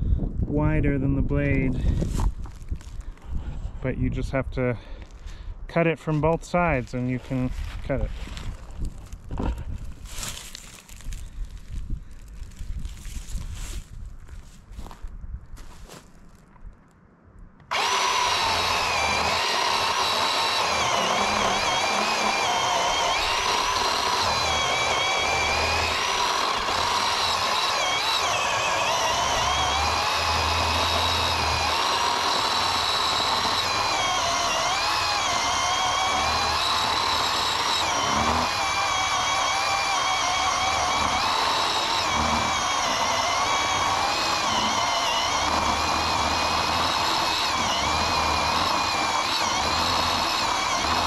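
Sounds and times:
electric chainsaw cutting log: 0:07.3 - 0:11.8, 0:17.7 - 0:51.0.

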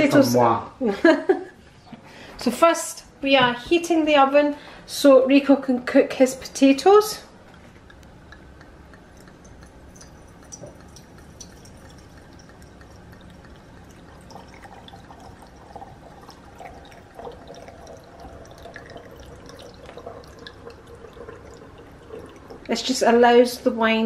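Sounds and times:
wine pouring into decanter: 0:07.5 - 0:23.6.

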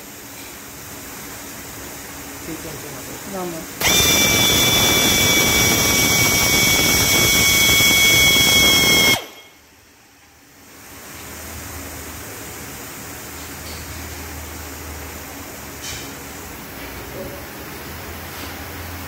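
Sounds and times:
faint steady hum: 0:00.0 - 0:13.2
pneumatic air drill whining: 0:03.8 - 0:09.6.

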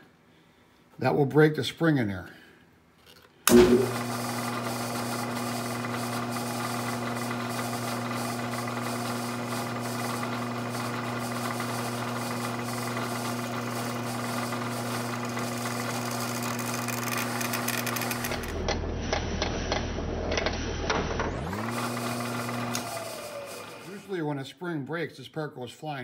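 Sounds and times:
milling machine spindle humming: 0:03.5 - 0:24.2
sharp clicks and rattles: 0:16.1 - 0:18.8.

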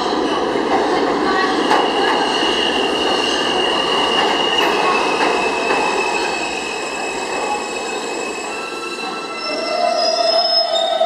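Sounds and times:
subway train rumbling: 0:00.0 - 0:11.0.

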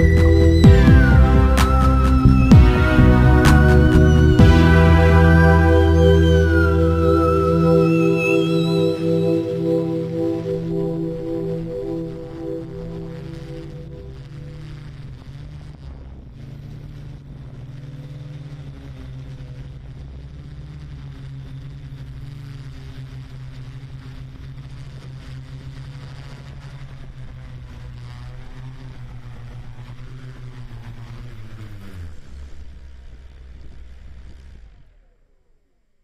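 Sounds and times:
drone propellers humming: 0:00.0 - 0:15.0.

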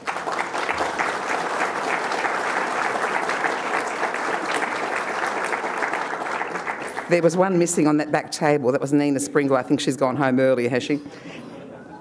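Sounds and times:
audience clapping: 0:00.0 - 0:07.7.

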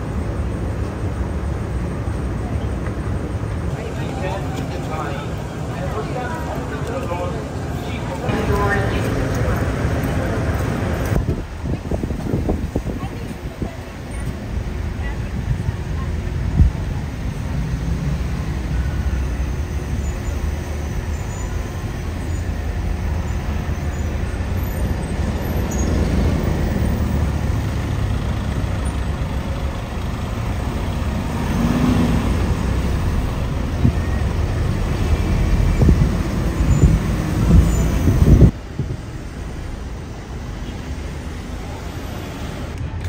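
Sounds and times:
low outdoor rumble: 0:00.0 - 0:43.0.

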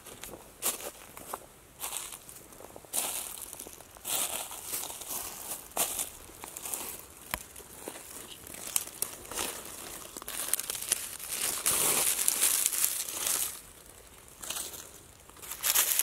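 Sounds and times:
dry leaves rustling: 0:01.8 - 0:16.0.

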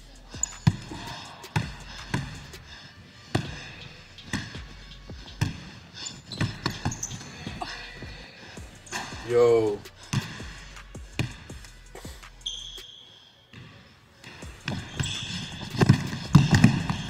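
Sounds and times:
basketball bouncing on wood floor: 0:00.4 - 0:02.4, 0:06.3 - 0:08.2, 0:10.1 - 0:11.6, 0:14.2 - 0:17.0.

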